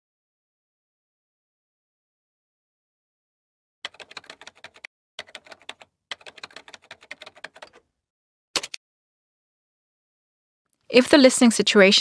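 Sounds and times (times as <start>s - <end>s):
rapid keyboard typing clicks: 3.9s - 7.8s, 8.6s - 8.8s.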